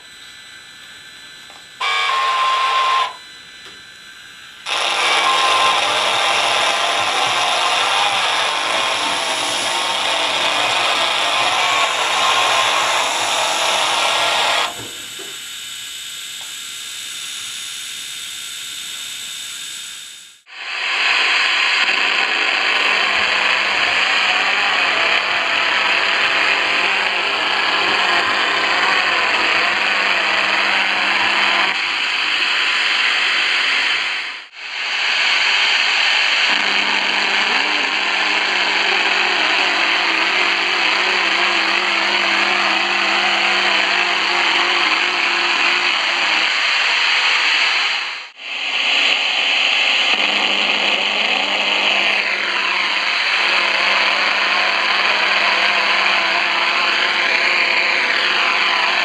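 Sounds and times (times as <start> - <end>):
radio static buzz: 0.0 - 59.0.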